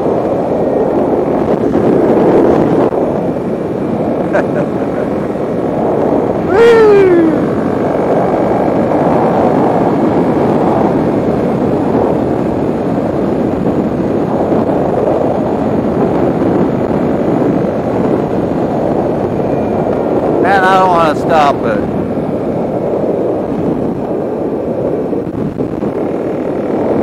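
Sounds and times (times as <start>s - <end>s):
motorcycle engine running: 0.0s - 20.4s
rush of noise: 0.0s - 27.0s
high wail dropping in pitch: 6.4s - 7.6s.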